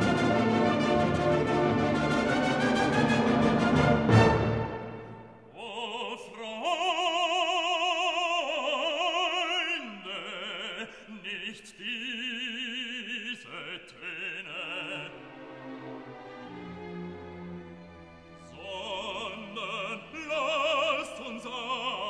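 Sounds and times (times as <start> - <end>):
orchestral chord: 0.0 - 5.4
operatic voice singing: 5.5 - 15.5, 18.4 - 22.0.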